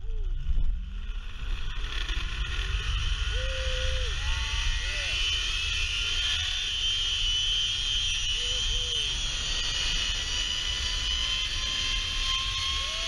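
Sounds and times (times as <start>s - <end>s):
pulleys whining along cable: 0.7s - 13.0s.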